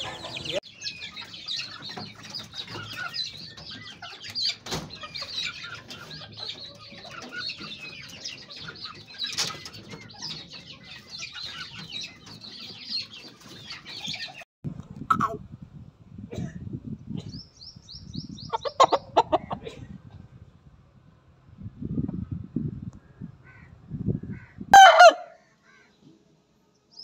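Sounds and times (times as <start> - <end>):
many birds chirping: 0.0 - 14.5, 17.1 - 20.7, 21.4 - 24.7, 25.4 - 27.0
chickens clucking: 0.0 - 15.4, 18.4 - 20.3.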